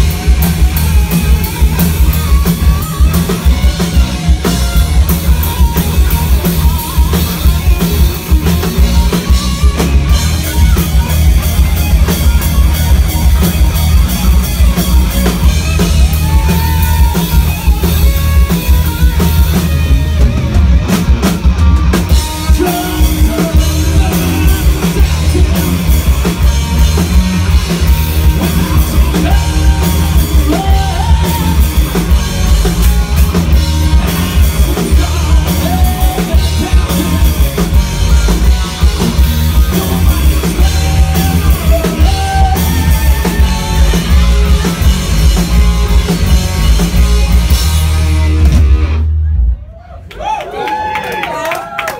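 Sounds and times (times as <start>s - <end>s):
electric guitars: 0.0s - 49.4s
drum kit: 0.0s - 49.7s
bass guitar: 0.0s - 50.4s
person singing into a microphone: 29.1s - 31.6s.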